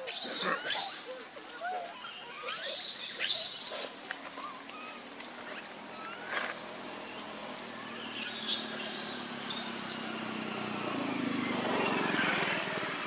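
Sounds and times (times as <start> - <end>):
high insect drone: 0.0 - 13.0
baby monkey squeaks: 0.1 - 6.5.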